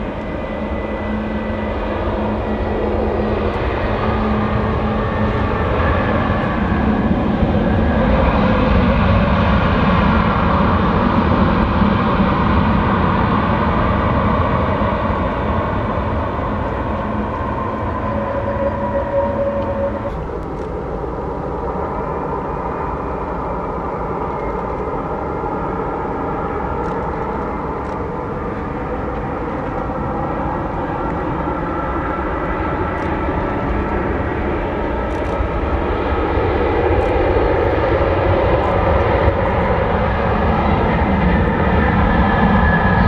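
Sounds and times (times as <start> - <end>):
jet engine roar: 0.0 - 43.0
jet engine whining tones: 0.0 - 43.0.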